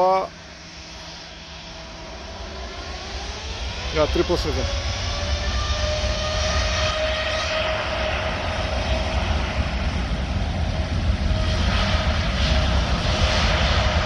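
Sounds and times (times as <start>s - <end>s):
jet engines at takeoff power: 0.0s - 14.0s.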